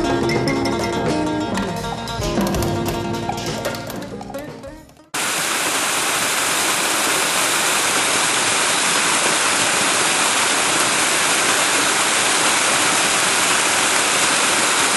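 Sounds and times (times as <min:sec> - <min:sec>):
small waterfall splashing: 0:05.2 - 0:14.9.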